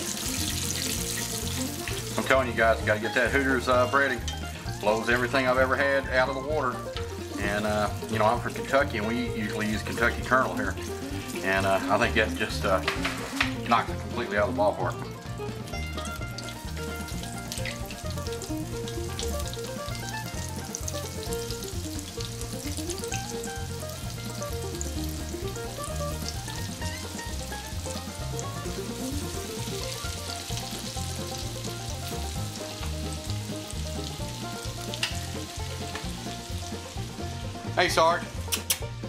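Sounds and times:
chicken deep-frying in oil: 0.0 - 38.9
background music: 0.0 - 39.0.

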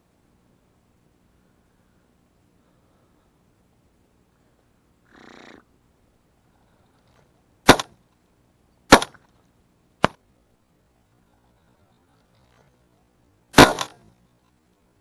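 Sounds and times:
shotgun shots: 7.6 - 8.0, 8.9 - 9.2, 13.5 - 14.1.

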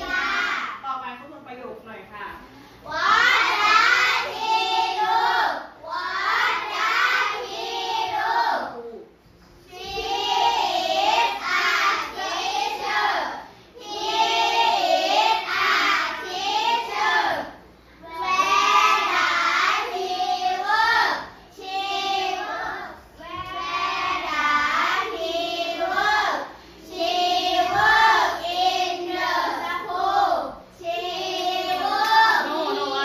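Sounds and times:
children's voices in unison: 0.0 - 0.7.

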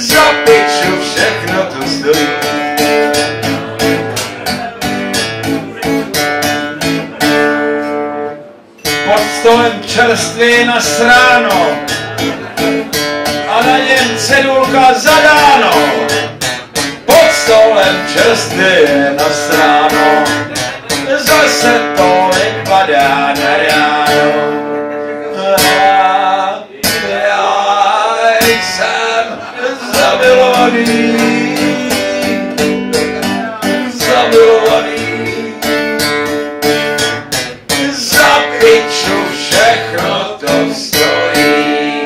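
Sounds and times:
man singing: 0.0 - 8.0, 8.8 - 12.6, 13.3 - 42.0
acoustic guitar strumming: 0.0 - 42.0.

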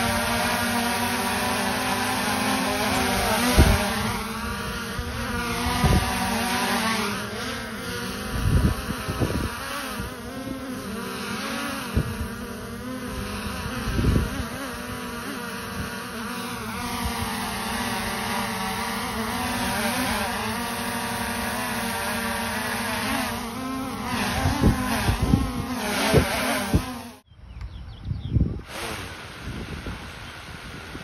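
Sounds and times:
drone buzzing whine: 0.0 - 31.0
wind buffeting microphone: 2.9 - 6.7, 8.0 - 10.6, 11.8 - 15.0, 24.0 - 27.1, 27.7 - 31.0.

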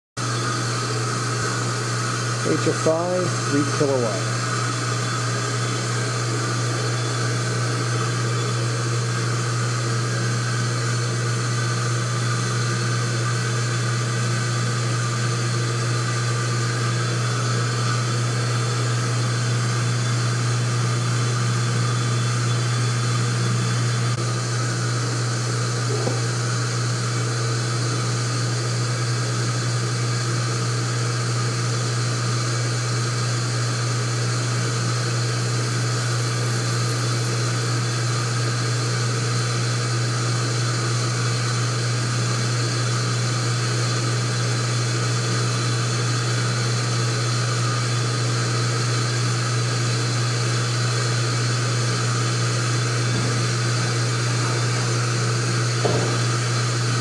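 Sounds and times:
induction heater humming: 0.2 - 57.0.

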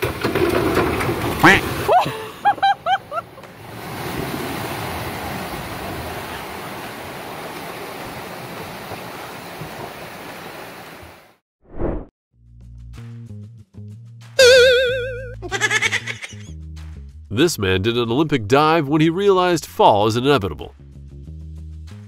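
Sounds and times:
water gushing and rushing: 3.2 - 12.0
short high cries: 14.4 - 16.3.

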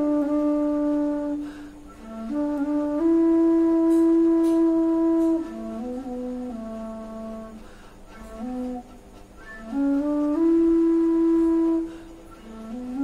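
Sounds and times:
bamboo flute melody: 0.0 - 13.0
breath: 1.4 - 2.0, 7.6 - 8.2, 11.8 - 12.4.

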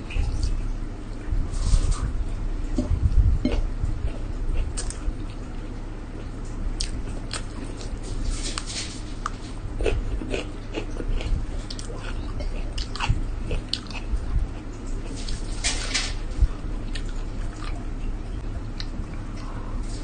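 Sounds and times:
low steady hum: 0.0 - 20.0
person chewing: 2.7 - 5.6, 6.2 - 15.5, 16.8 - 17.9.

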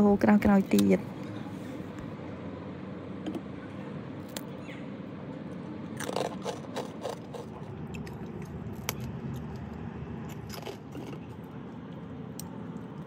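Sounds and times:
low background hum: 0.0 - 13.0
rice crackers cracking: 6.0 - 11.3.

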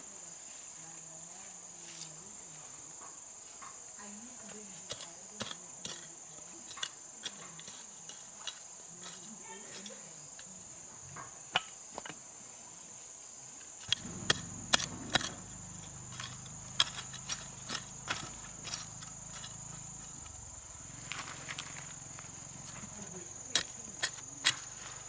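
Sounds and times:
insects droning: 0.0 - 25.0
hoe chopping into dry soil: 13.9 - 25.0.

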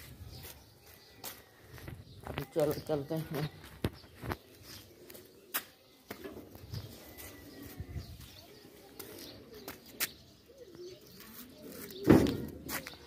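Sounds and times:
loud thump: 12.0 - 12.6.

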